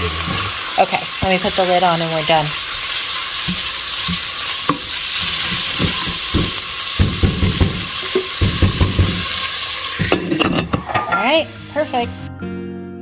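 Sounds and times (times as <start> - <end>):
meat sizzling in a pot: 0.0 - 12.1.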